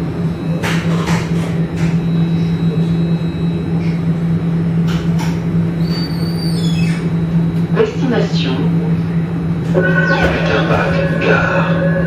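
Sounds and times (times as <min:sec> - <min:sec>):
tram electrical hum: 0:00.0 - 0:12.0
low running rumble: 0:07.1 - 0:12.0
high thin whine: 0:09.7 - 0:12.0.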